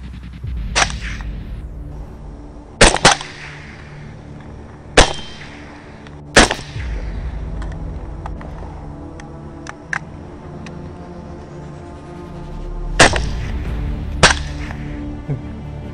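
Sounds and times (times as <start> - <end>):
rifle shots: 2.8 - 7.3, 13.0 - 13.6.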